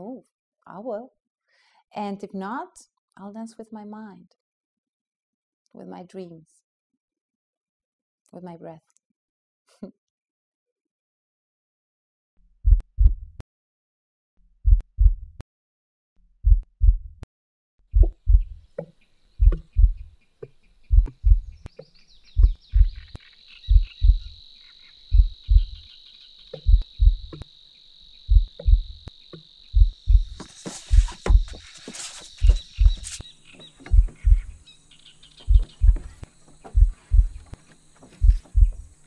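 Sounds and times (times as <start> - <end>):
heartbeat thumps: 12.6 - 13.4, 14.6 - 15.4, 16.4 - 17.3, 17.9 - 20.1, 20.9 - 21.7, 22.4 - 24.4, 25.1 - 25.9, 26.6 - 27.4, 28.3 - 29.1, 29.7 - 31.6, 32.4 - 33.2, 33.8 - 34.6, 35.4 - 37.5, 38.2 - 39.0
insects chirring: 18.0 - 39.0.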